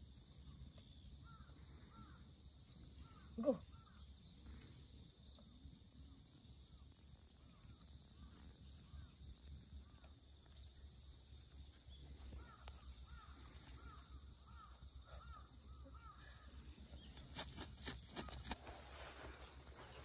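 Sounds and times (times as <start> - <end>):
distant bird calls: 0.5 - 20.0.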